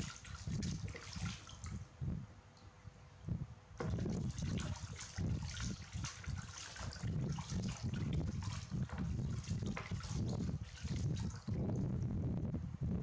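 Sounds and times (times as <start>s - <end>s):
water trickling and splashing: 0.0s - 1.8s, 3.8s - 11.9s.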